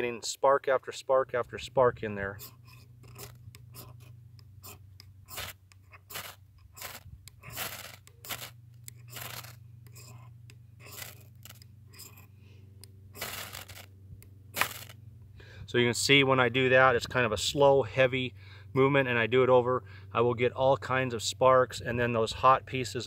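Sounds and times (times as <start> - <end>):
striker scraping ferrocerium rod: 2.3 - 12.3, 13.1 - 13.9, 14.5 - 15.0.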